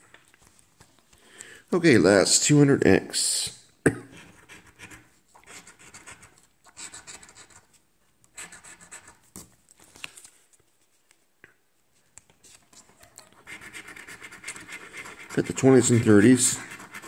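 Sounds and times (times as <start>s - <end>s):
coin scraping scratch card: 13.4s - 17.0s.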